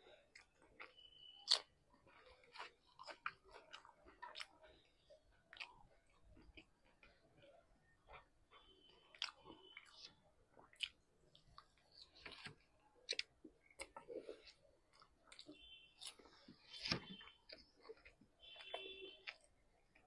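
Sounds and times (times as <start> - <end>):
wet chewing with lip smacks: 0.3 - 20.0.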